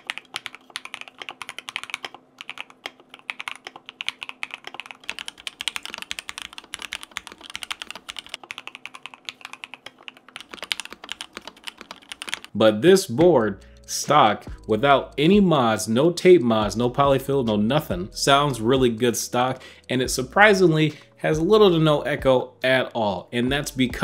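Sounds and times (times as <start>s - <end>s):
mechanical keyboard typing: 0.0s - 12.6s.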